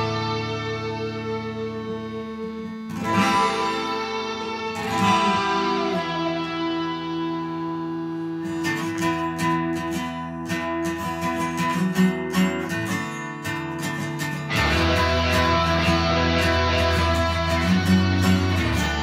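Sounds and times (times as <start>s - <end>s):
guitar chords ringing: 0.0s - 19.0s
rhythmic guitar strumming: 0.0s - 19.0s.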